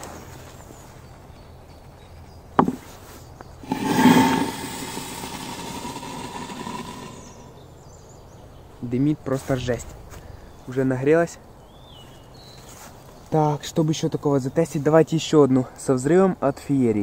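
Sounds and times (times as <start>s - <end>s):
firework hissing and whistling: 3.6s - 7.6s.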